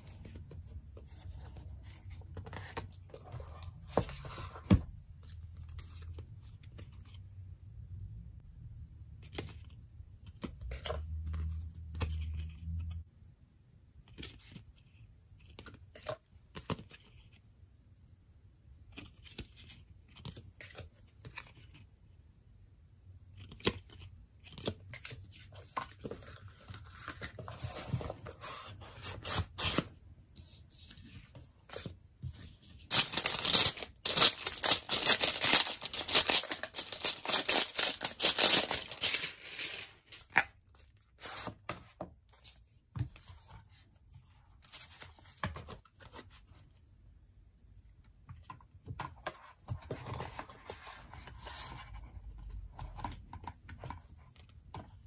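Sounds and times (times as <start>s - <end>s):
clicks and rustles of cards: 31.0s - 40.5s
plastic wrap tearing and crinkling: 32.9s - 40.4s.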